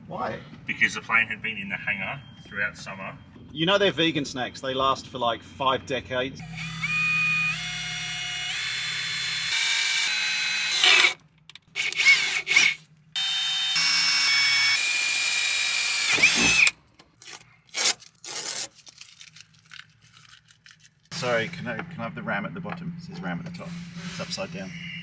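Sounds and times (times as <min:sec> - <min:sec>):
cordless drill motor whine: 0:06.4 - 0:11.2, 0:11.8 - 0:16.8
masking tape peeling: 0:16.1 - 0:21.1.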